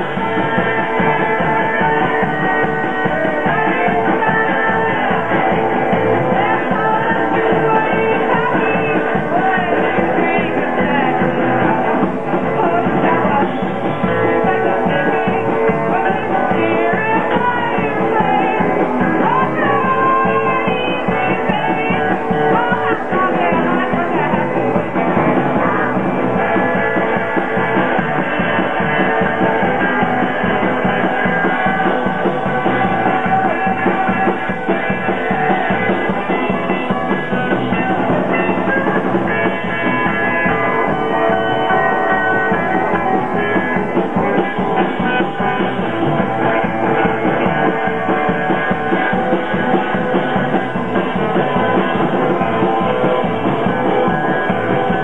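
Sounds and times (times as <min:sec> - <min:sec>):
bass guitar: 0:00.0 - 0:55.0
drum kit: 0:00.0 - 0:55.0
electric guitar: 0:00.0 - 0:55.0.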